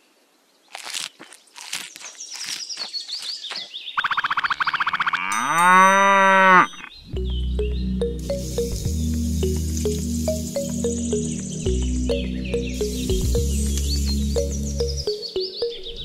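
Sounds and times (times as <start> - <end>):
cow mooing: 5.1 - 6.9
background music with bass: 7.1 - 16.0.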